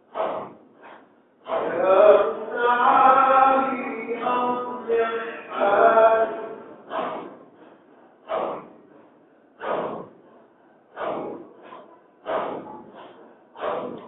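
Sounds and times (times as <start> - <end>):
group chanting breathy exhalations: 0.0 - 14.0.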